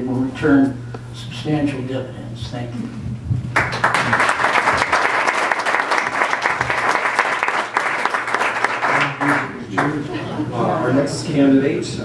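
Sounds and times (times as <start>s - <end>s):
audience applauding: 3.5s - 10.1s.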